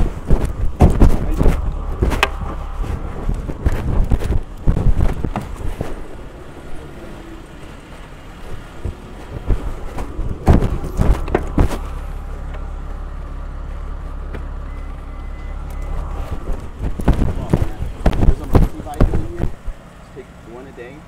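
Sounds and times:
knocks and thumps from car hatch: 0.0s - 6.0s, 8.8s - 11.9s
low engine rumble: 0.0s - 21.0s.

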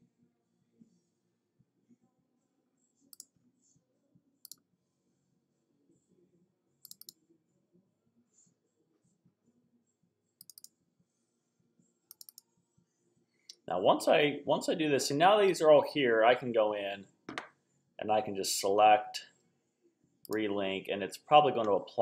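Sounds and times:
computer mouse double-clicks: 6.9s - 7.2s, 10.4s - 10.7s, 12.1s - 12.4s.

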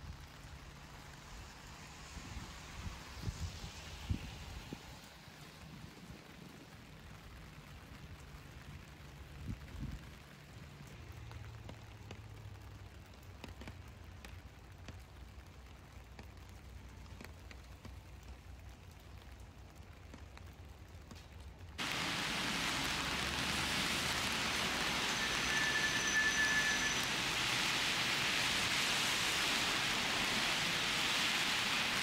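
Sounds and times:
loud steady hiss: 21.8s - 32.0s
brief high tone: 24.2s - 27.7s.

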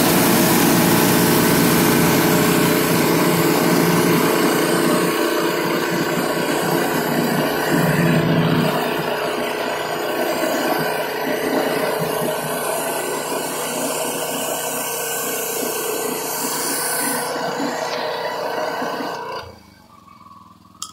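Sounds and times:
water spraying on concrete: 0.0s - 19.4s
pressure washer engine running: 0.0s - 20.9s.

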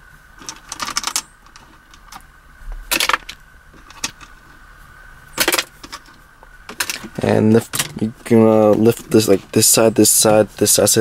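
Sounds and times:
metal screws clinking and rattling: 0.4s - 2.2s, 2.9s - 4.3s, 5.4s - 7.1s.

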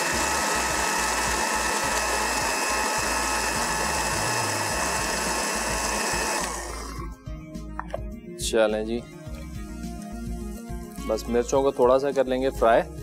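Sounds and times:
electric blender grinding: 0.0s - 7.2s.

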